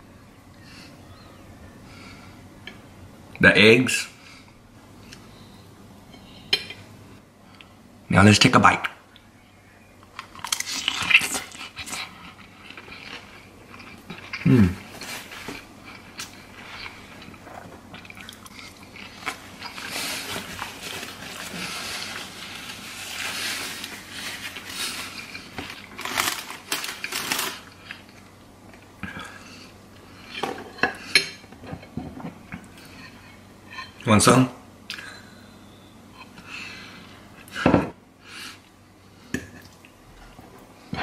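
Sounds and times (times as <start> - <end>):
low voice hum: 14.4 - 14.9.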